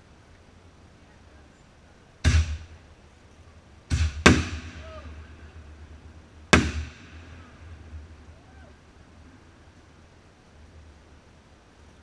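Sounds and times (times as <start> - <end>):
fireworks bangs echoing: 2.2 - 2.7, 3.9 - 8.5.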